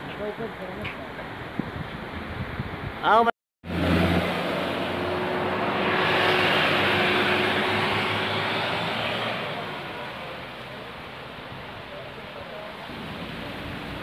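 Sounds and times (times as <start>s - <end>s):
vehicle passing on road: 3.6s - 14.0s.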